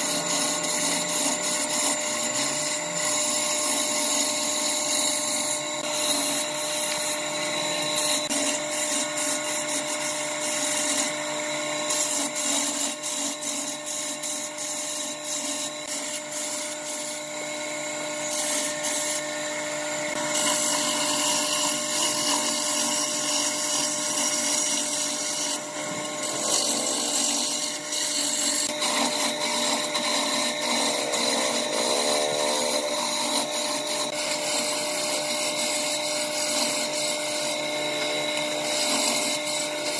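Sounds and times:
chisel scraping spinning wood: 0.0 - 39.9
wood lathe humming: 0.0 - 39.9.

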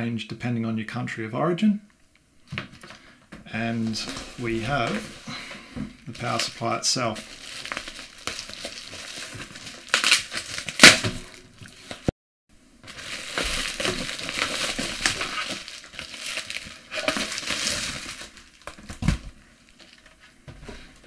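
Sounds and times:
bubble wrap crinkling: 6.0 - 12.1, 12.8 - 20.4.

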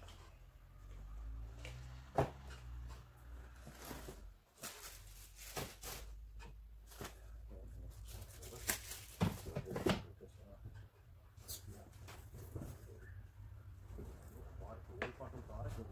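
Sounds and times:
cardboard and plastic packaging handled: 2.8 - 10.1.

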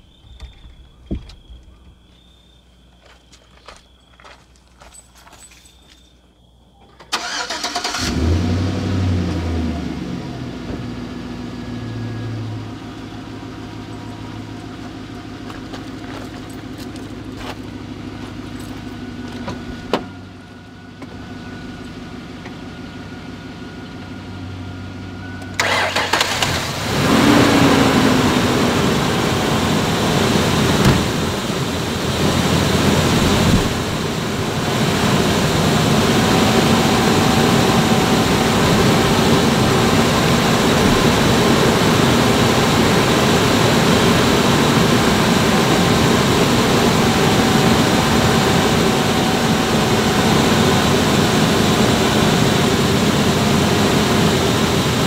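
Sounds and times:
truck engine starting and idling: 6.9 - 55.0
loud rushing noise: 27.4 - 53.0.

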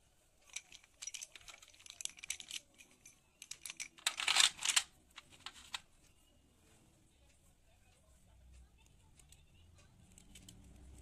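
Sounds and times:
chalk sticks clattering on metal tray: 0.4 - 5.8.

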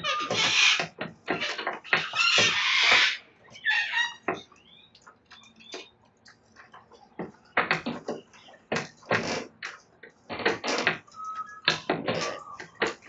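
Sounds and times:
beaks chewing wood: 0.0 - 13.0
cockatoos screeching: 1.9 - 4.3.

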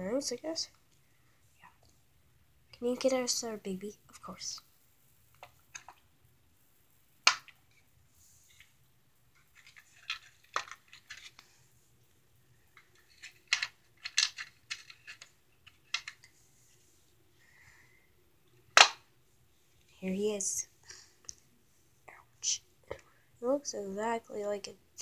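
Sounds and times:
plastic toys clicking: 9.5 - 11.4, 12.8 - 16.3.

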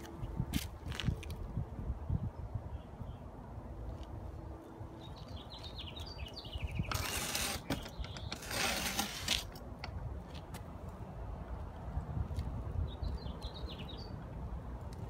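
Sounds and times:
bird chirping: 5.0 - 7.1, 7.7 - 8.4, 12.9 - 14.2.

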